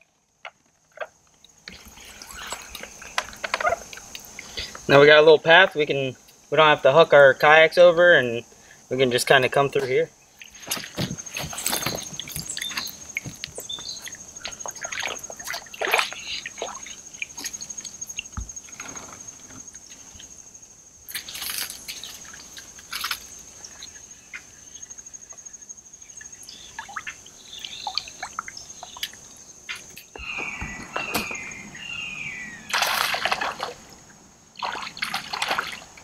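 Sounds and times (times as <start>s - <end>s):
high-pitched insect trill: 0.7s - 36.0s
water sloshing around kayak: 10.3s - 20.5s, 21.2s - 36.0s.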